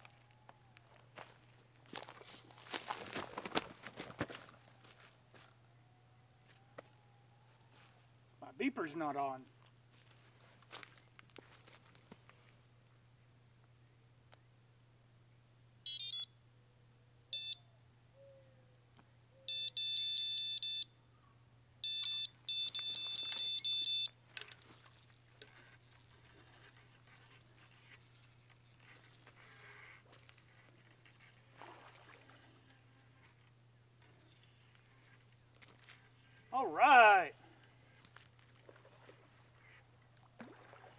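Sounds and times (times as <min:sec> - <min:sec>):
electronic bite alarm beeping: 0:15.9 - 0:16.3, 0:17.4 - 0:17.6, 0:19.5 - 0:20.9, 0:21.8 - 0:24.2
faint handling noise: 0:22.7 - 0:31.4.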